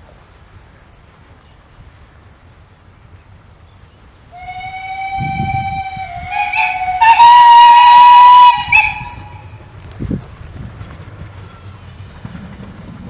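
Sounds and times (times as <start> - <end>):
steam locomotive whistle: 4.3 - 9.6.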